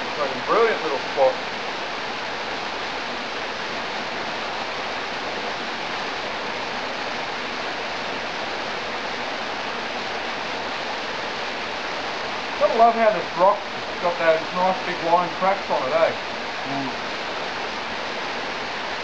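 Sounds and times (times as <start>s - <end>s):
water rushing down rocky creek: 0.0s - 19.0s.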